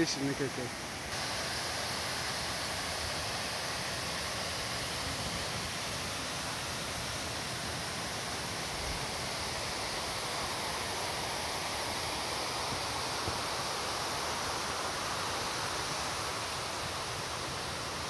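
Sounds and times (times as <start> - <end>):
waterfall rushing: 0.0 - 18.0.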